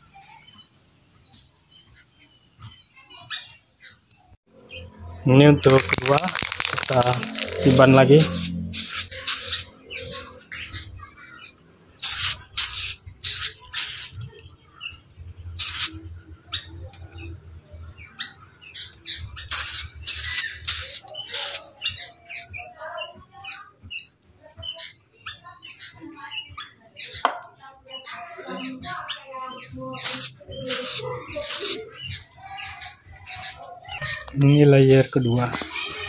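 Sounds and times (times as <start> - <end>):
birds chirping: 0.0 - 36.0
spray can hissing: 5.7 - 9.7, 12.0 - 14.5, 15.6 - 16.0, 19.4 - 21.6, 30.0 - 31.9.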